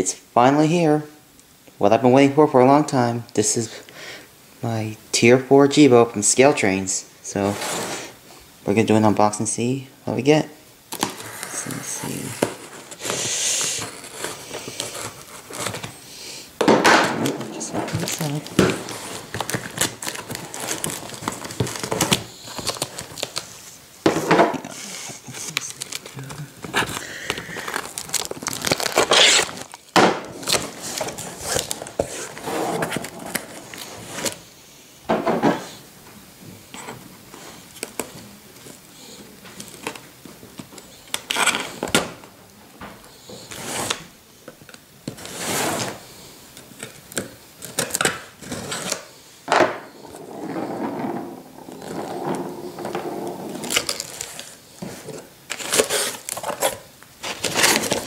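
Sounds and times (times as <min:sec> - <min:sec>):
packing paper crinkling: 0:10.9 - 0:16.0, 0:17.3 - 0:23.8, 0:24.7 - 0:34.4, 0:49.9 - 0:58.0
cardboard box scraping and knocking: 0:49.9 - 0:55.1.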